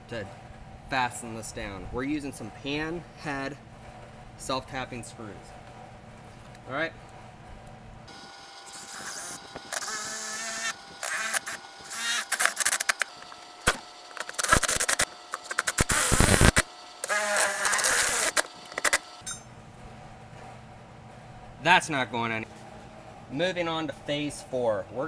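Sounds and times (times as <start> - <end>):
cordless driver motor whine: 8.1 - 19.5.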